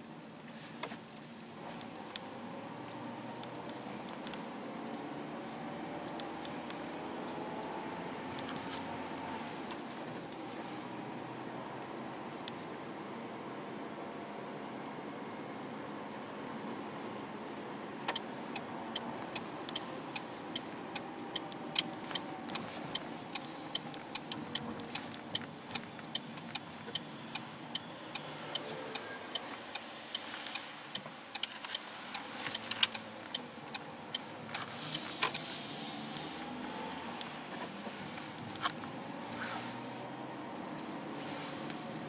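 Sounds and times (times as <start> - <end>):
road and engine noise: 0.0 - 42.0
turn signal ticking: 0.8 - 13.3, 16.4 - 42.0
irregular clicks: 18.1 - 35.4.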